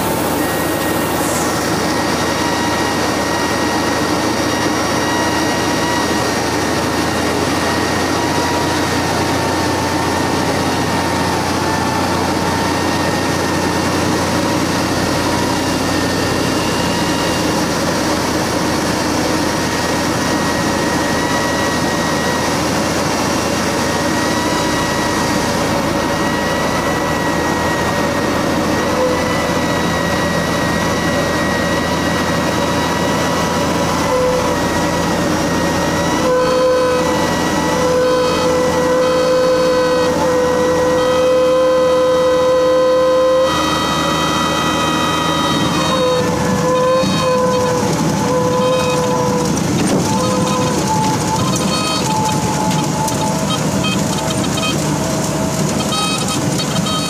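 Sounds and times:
propeller plane engine drone: 0:00.0 - 0:57.0.

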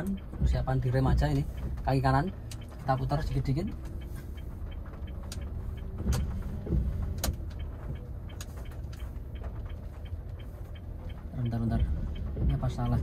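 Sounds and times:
car engine at low revs: 0:00.0 - 0:13.0
tyres rumbling: 0:00.0 - 0:13.0.

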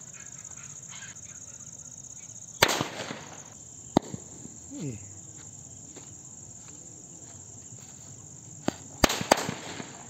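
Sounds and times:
crickets chirring: 0:00.0 - 0:10.0
firecrackers banging: 0:02.6 - 0:04.6, 0:08.6 - 0:10.0.

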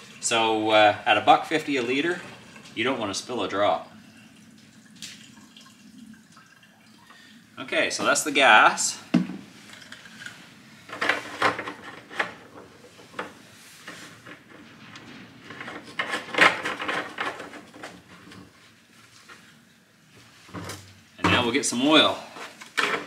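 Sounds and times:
plastic jug knocking in cardboard box: 0:09.1 - 0:09.4.

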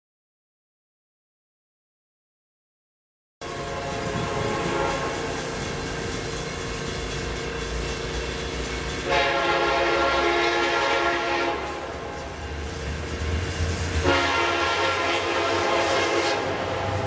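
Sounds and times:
locomotive air horn blasts: 0:03.4 - 0:05.3, 0:09.0 - 0:11.9, 0:14.0 - 0:16.9
train rumbling: 0:03.4 - 0:17.0.

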